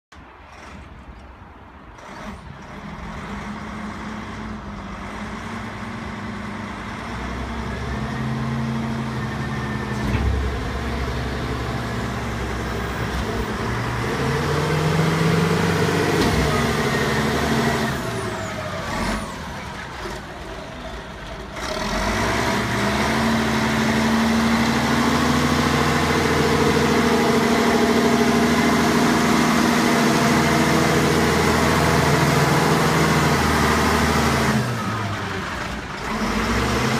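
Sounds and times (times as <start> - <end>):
diesel engine revving: 0.1 - 36.9
clunk: 9.9 - 10.8.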